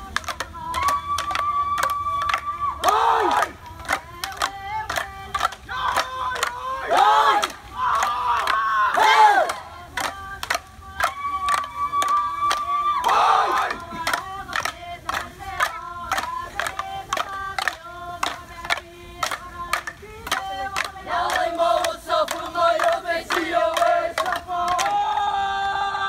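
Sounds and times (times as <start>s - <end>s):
bamboo sticks clacking: 0.0s - 25.3s
group chanting together: 2.8s - 3.6s, 5.3s - 10.3s, 13.0s - 19.4s, 20.3s - 26.0s.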